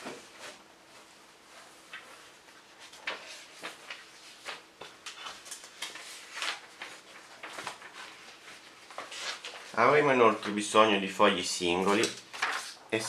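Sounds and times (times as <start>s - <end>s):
paper rustling and scraping: 1.7s - 10.6s, 11.6s - 12.8s.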